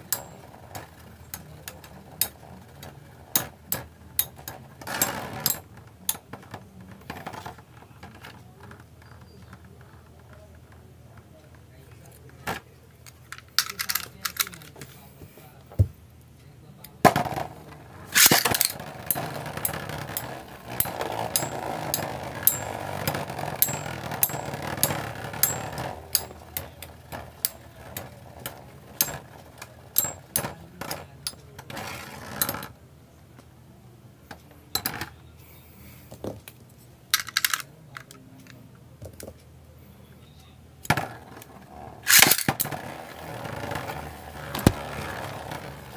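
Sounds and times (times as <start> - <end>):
spinning tops clacking: 18.2 - 23.0, 42.1 - 42.7
whirr of spinning tops: 18.2 - 29.3, 42.0 - 45.9.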